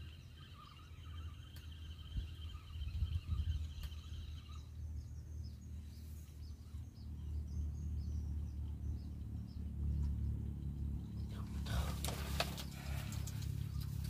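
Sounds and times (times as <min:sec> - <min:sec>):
small birds chirping: 0:00.0 - 0:14.0
wind rumbling on microphone: 0:01.1 - 0:14.0.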